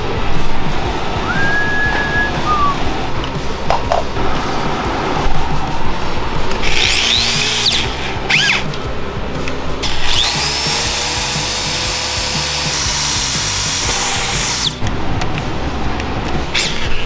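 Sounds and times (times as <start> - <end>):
electric drill boring into metal: 6.7 - 8.6, 9.8 - 14.8.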